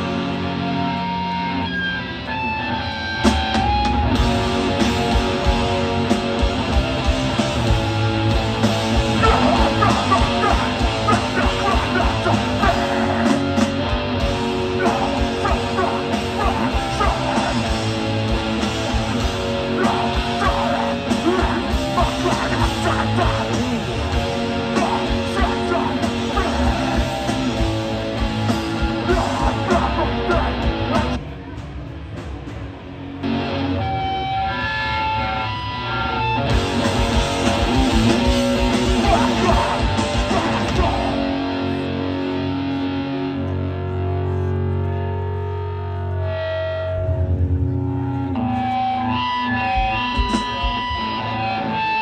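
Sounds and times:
electric guitar: 0.0 - 52.0
punk band playing loud: 0.0 - 52.0.

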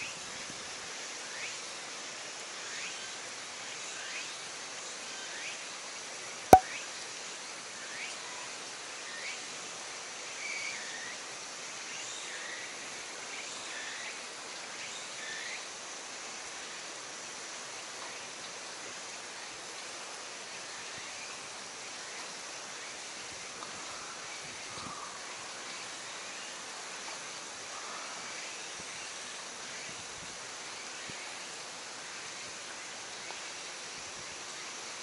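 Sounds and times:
steady hiss: 8.6 - 35.0.

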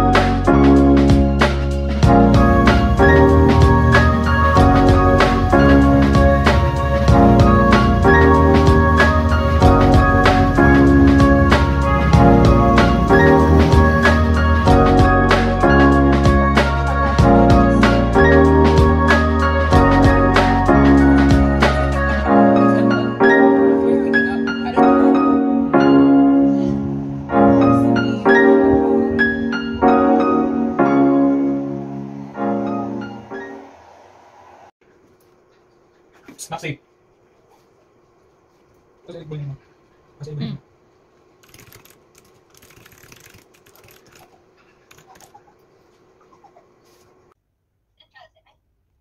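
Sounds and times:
calm piano chords: 0.0 - 34.5
mechanical keyboard typing: 41.4 - 45.4.

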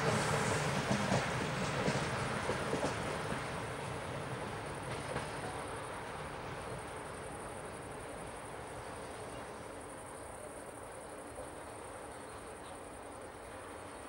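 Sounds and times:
passenger train rumbling on rails: 0.0 - 14.0.

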